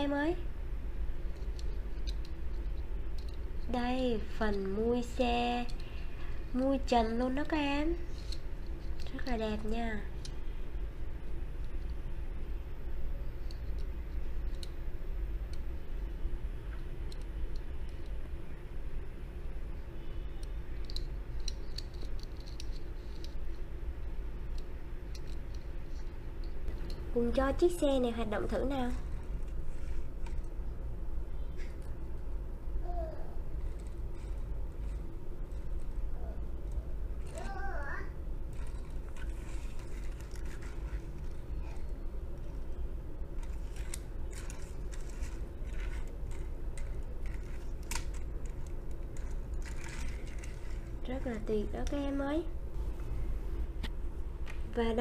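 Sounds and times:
steady low hum: 0.0s - 55.0s
toy car wheels rolling on table: 43.4s - 52.0s.

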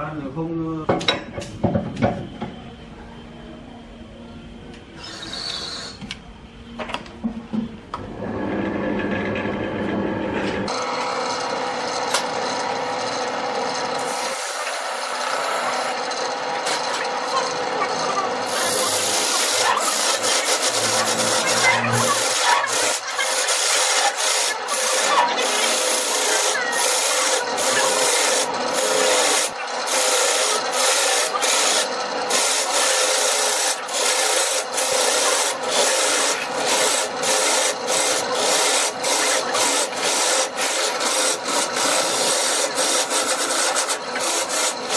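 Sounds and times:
wood lathe running: 10.6s - 44.9s
tool scraping spinning wood: 13.7s - 44.9s.

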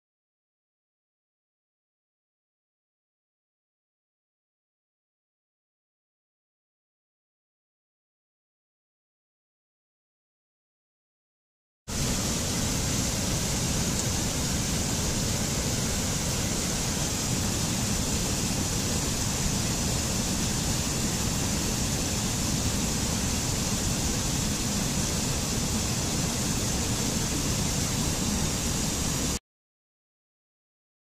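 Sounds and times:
stream rushing over rocks: 11.9s - 29.4s.

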